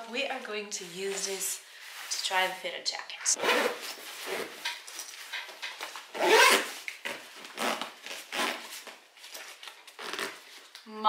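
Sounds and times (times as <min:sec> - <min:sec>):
fabric rustling and swishing: 0:00.1 - 0:05.3.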